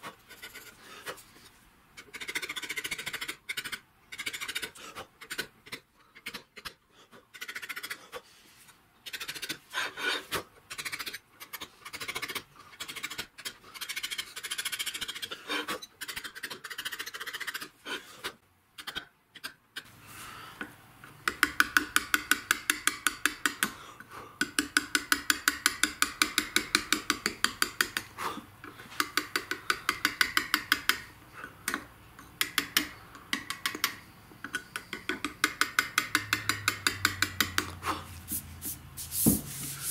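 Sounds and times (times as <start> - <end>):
chisel scraping slate: 9.1 - 17.8, 39.2 - 39.9
mallet tapping chisel: 21.2 - 23.7, 24.4 - 28.1, 29.0 - 37.8.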